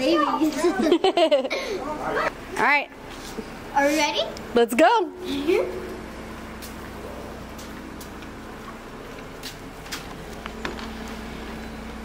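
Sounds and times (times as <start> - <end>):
steady low hum: 0.5 - 12.0
footsteps on concrete: 5.8 - 11.3.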